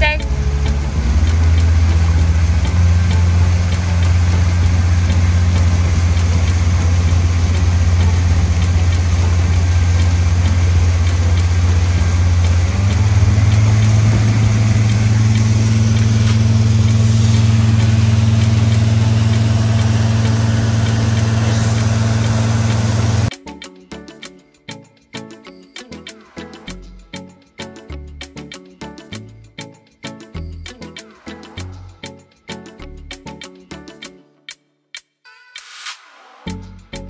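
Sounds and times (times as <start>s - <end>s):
boat motor droning: 0.0s - 23.3s.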